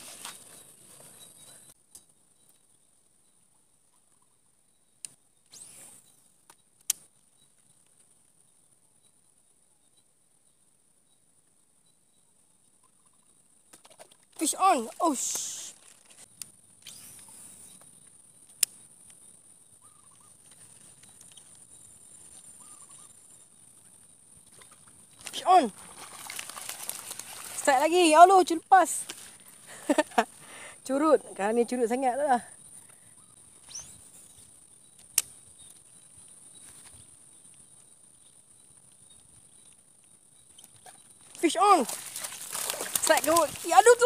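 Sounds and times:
insects buzzing: 13.1s - 44.0s.

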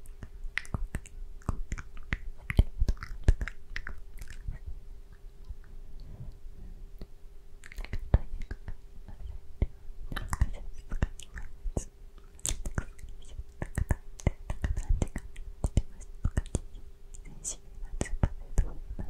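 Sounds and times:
wet mouth clicks: 0.0s - 5.7s, 7.0s - 18.7s
person whispering: 10.2s - 11.9s, 12.7s - 19.0s.

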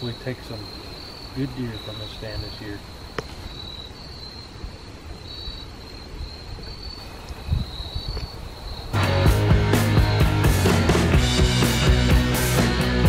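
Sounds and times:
crickets chirping: 0.0s - 11.2s
rock music with drums: 8.9s - 13.0s.

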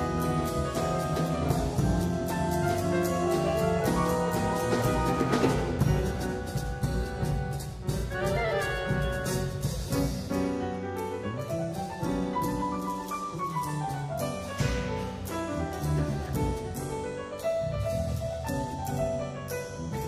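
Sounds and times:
chamber ensemble playing: 0.0s - 10.0s.

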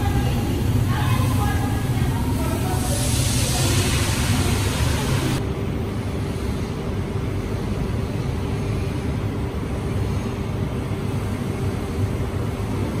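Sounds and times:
high hiss: 0.0s - 5.4s
factory rumble: 0.0s - 13.0s
faint machinery hum: 0.0s - 13.0s.

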